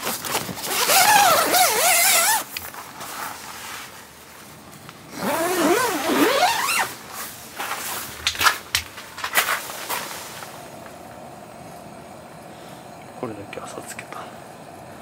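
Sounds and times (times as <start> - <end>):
tent zipper pulled: 0.0 - 3.4, 5.1 - 7.3.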